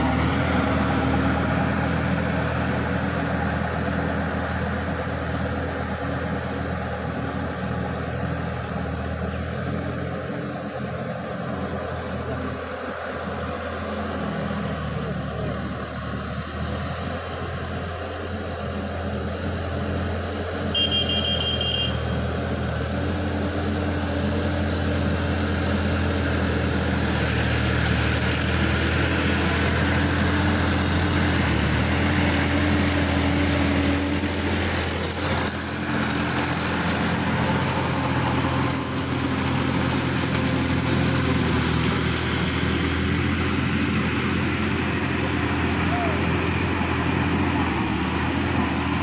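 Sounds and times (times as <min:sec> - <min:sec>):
tractor diesel engine running: 0:00.0 - 0:49.0
brief high tone: 0:20.8 - 0:22.1.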